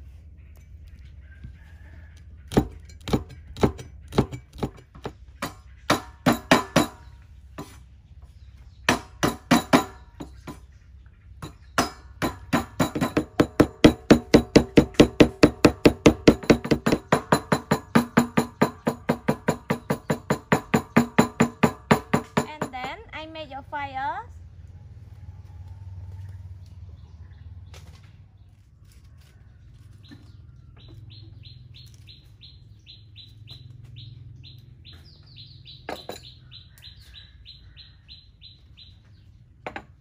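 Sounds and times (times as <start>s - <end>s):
cleaver chopping on wooden board: 2.5s - 7.0s, 11.8s - 23.0s.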